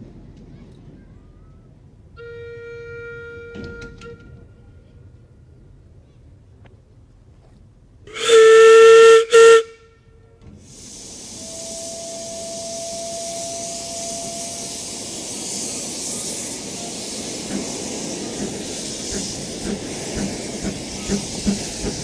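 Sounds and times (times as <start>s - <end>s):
steam whistle: 2.2s - 4.5s, 8.1s - 10.1s, 11.2s - 15.2s
steam hissing: 8.1s - 9.6s, 10.4s - 22.0s.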